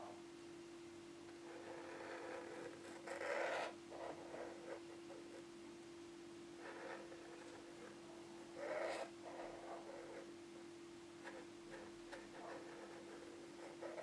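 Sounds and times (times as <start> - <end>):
steady low hum: 0.0 - 14.0
marker scratching on cardboard: 1.4 - 5.4, 6.6 - 8.0, 8.6 - 10.3, 11.2 - 14.0.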